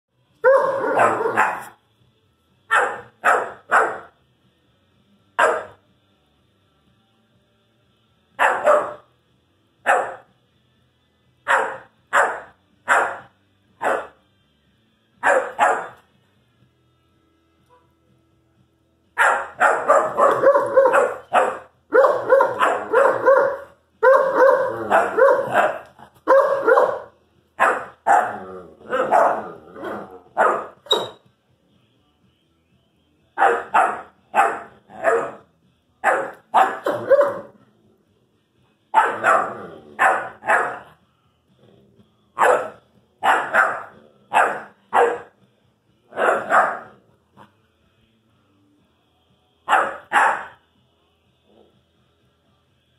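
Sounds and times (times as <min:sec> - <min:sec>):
puppy barking and yowling: 0:00.4 - 0:01.8, 0:02.7 - 0:04.1, 0:08.4 - 0:09.0, 0:15.2 - 0:16.0, 0:19.2 - 0:31.2, 0:33.4 - 0:37.6, 0:39.0 - 0:40.9, 0:42.4 - 0:45.3, 0:46.1 - 0:47.0, 0:49.7 - 0:50.6.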